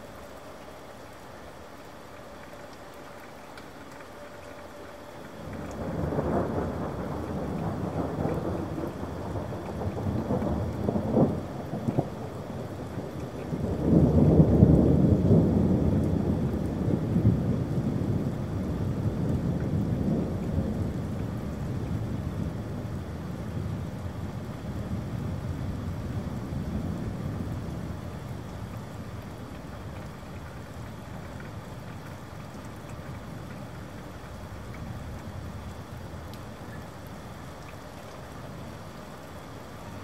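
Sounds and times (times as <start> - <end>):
steady rain: 0.0 - 40.0
thunder rumbling: 5.4 - 37.3.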